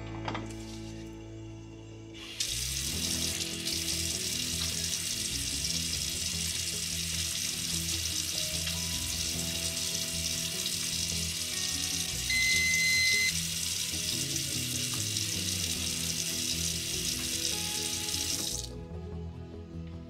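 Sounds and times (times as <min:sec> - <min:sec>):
kitchen tap running into sink: 0:02.2 - 0:18.8
brief high tone: 0:12.3 - 0:13.4.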